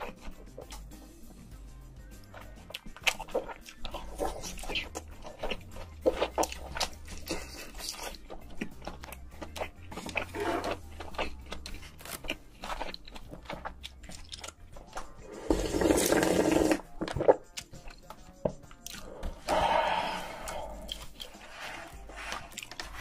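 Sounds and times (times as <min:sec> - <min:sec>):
noodles slurped and chewed: 0:02.1 - 0:18.0, 0:18.8 - 0:23.0
wet mouth clicks and smacks: 0:18.8 - 0:19.1.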